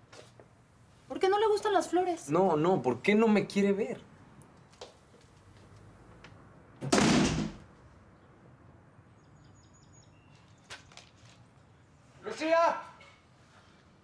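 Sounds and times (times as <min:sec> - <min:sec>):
wooden door shutting thud: 0:06.8 - 0:07.6.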